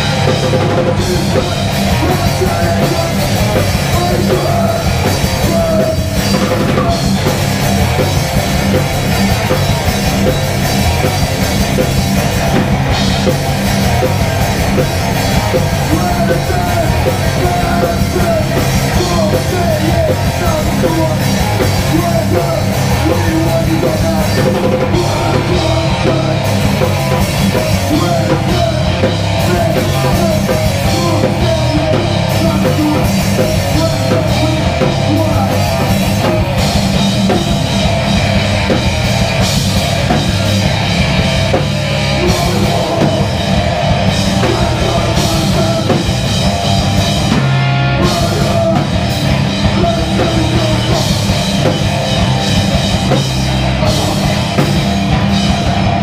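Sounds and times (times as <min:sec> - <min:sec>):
distorted electric guitar: 0:00.0 - 0:56.0
fast drum kit: 0:00.0 - 0:56.0
shouted vocals: 0:15.4 - 0:37.6, 0:42.0 - 0:46.3, 0:47.2 - 0:51.7.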